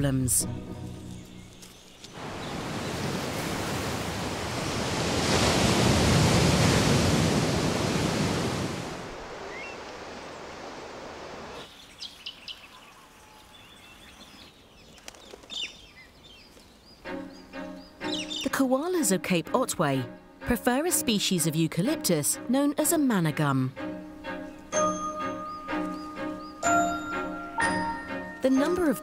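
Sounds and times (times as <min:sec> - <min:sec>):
surf washing over rocks: 0:02.2 - 0:11.6.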